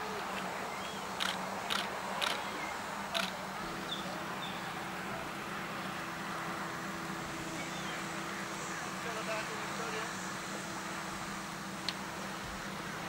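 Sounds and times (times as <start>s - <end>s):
outdoor background noise: 0.0s - 13.0s
camera clicks: 1.2s - 2.4s, 3.2s - 3.4s.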